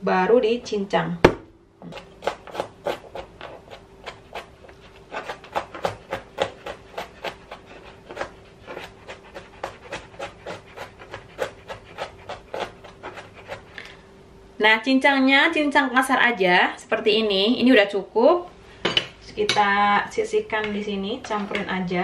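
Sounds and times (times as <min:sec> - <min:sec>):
knife chopping on plastic board: 0:01.2 - 0:13.7.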